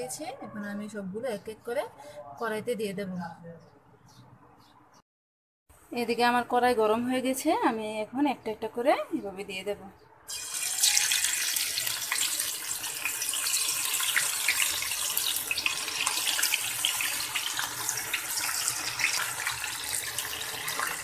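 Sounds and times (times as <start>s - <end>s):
hot oil sizzling and popping: 10.3s - 21.0s.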